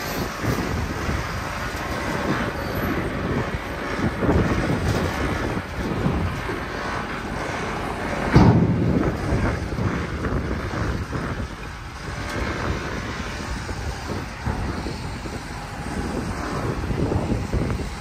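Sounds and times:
diesel truck engine running: 0.0 - 18.0
loud thump: 8.3 - 9.3.

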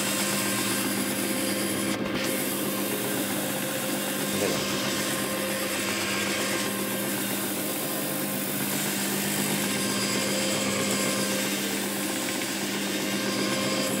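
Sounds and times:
carpet cleaning machine motor hum: 0.0 - 14.0.

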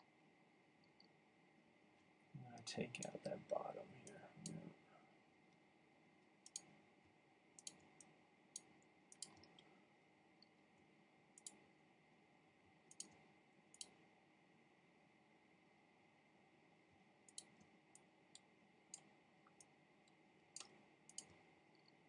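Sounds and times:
faint mouse clicks: 0.8 - 1.2, 2.9 - 3.3, 6.2 - 6.8, 7.6 - 9.8, 11.3 - 11.7, 12.8 - 14.0, 17.2 - 22.0.

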